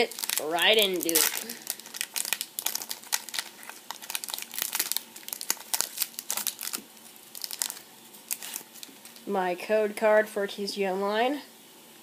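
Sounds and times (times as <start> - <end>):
foil wrapper crinkling: 0.0 - 9.3.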